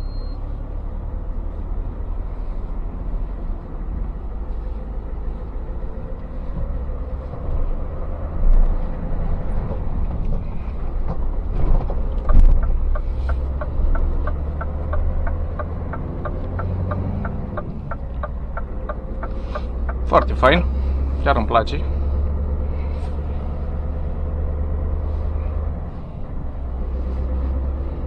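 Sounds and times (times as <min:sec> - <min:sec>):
diesel truck engine running: 0:00.0 - 0:28.0
turn signal ticking: 0:11.0 - 0:21.1.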